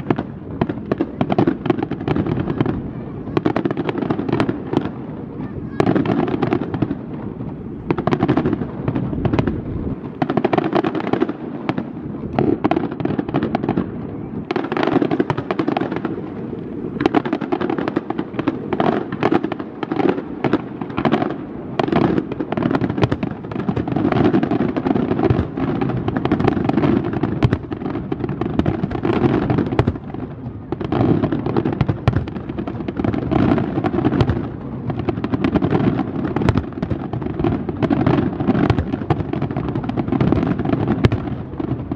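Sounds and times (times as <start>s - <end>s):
fireworks bursting and crackling: 0.0s - 41.9s.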